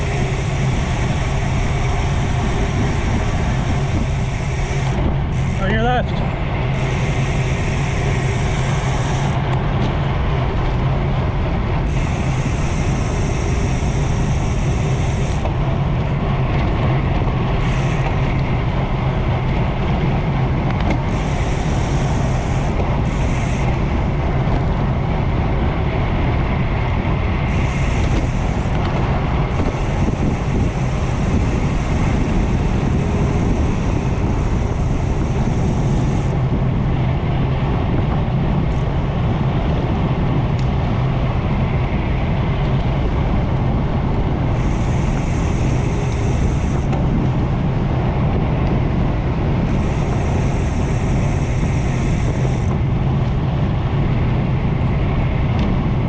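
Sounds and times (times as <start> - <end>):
wind rushing over microphone: 0.0 - 56.0
high hiss: 44.5 - 46.9, 49.7 - 52.7.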